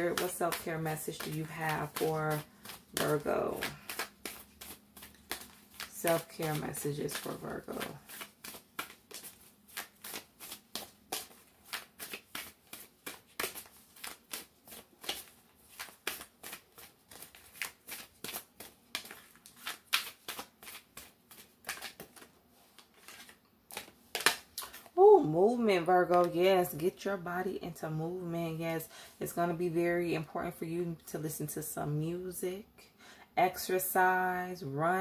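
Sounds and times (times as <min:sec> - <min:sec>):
cards being shuffled: 0:00.0 - 0:25.0.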